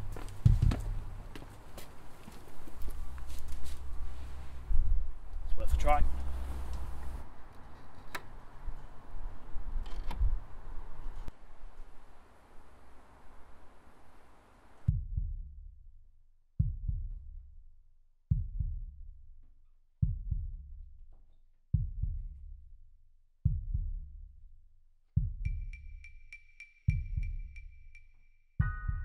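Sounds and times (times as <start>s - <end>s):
low booming double thump: 14.9s - 15.5s.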